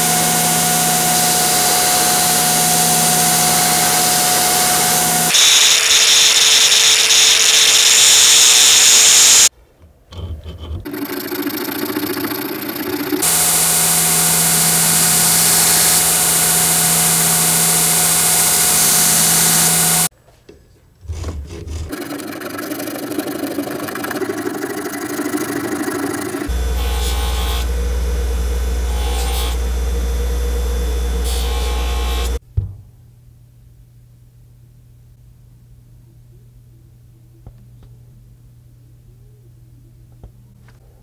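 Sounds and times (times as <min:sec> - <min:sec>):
power grinder grinding metal: 0:00.0 - 0:09.5, 0:10.9 - 0:20.1, 0:21.9 - 0:32.4.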